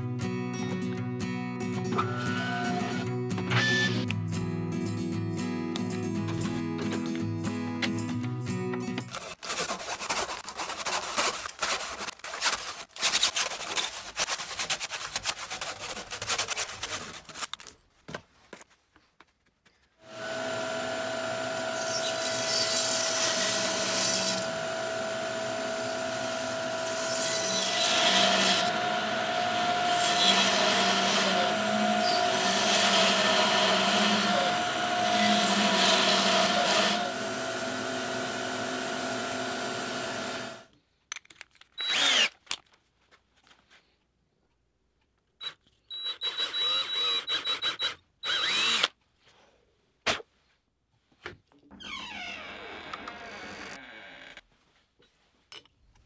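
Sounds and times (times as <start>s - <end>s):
bandsaw cutting wood: 20.1s - 40.7s, 46.1s - 48.9s
cordless drill boring into wood: 20.1s - 40.7s, 41.8s - 42.3s, 45.4s - 49.0s.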